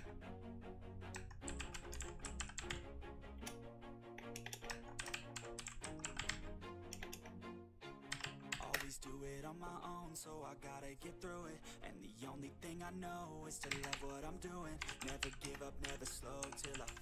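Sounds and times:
background music: 0.0 - 17.0
rapid keyboard typing: 1.2 - 2.8, 4.2 - 6.4, 7.0 - 7.2, 8.1 - 8.9, 13.6 - 17.0.

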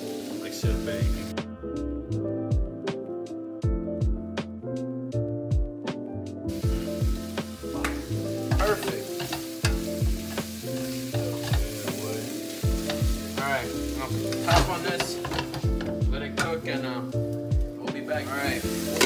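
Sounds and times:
steak sizzling in a frying pan: 0.0 - 1.3, 6.5 - 19.0
background music with deep bass: 0.0 - 19.0
metal tongs stirring: 7.8 - 13.2, 13.8 - 16.6, 18.4 - 19.0.

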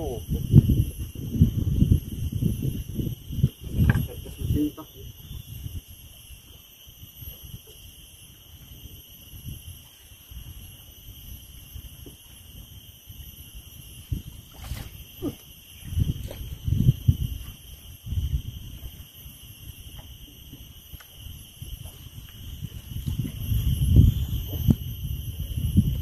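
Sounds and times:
high-pitched insect drone: 0.0 - 26.0
wind rumble on microphone: 0.0 - 26.0.

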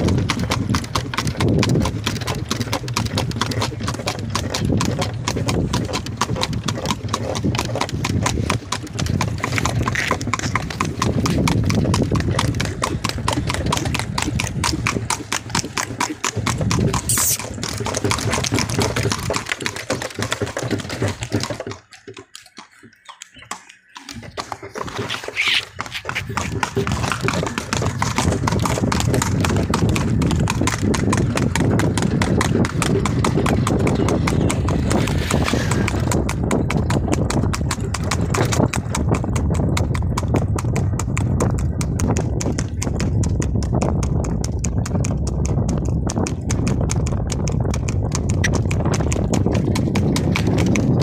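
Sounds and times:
horse hooves on hard road: 0.0 - 51.0.

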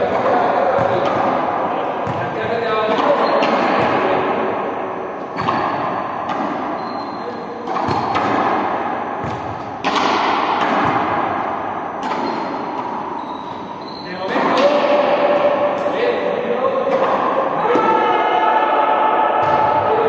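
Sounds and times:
ball thudding on hard floor: 7.7 - 8.6.

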